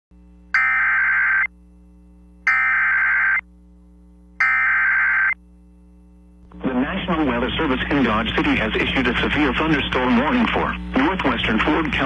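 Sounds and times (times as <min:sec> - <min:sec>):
faint low hum: 0:00.2 - 0:12.0
warbling two-tone data bursts: 0:00.6 - 0:01.5, 0:02.5 - 0:03.4, 0:04.4 - 0:05.4.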